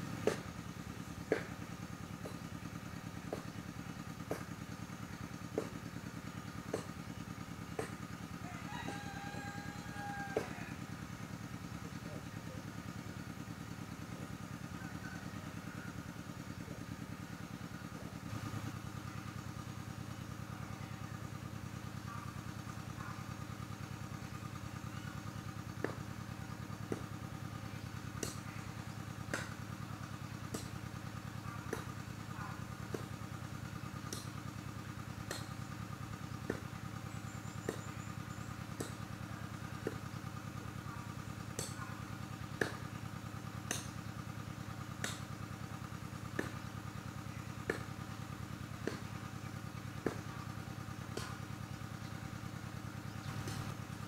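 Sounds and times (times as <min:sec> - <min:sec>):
small engine idling: 0:00.0 - 0:54.0
sharp ticks: 0:43.6 - 0:44.0.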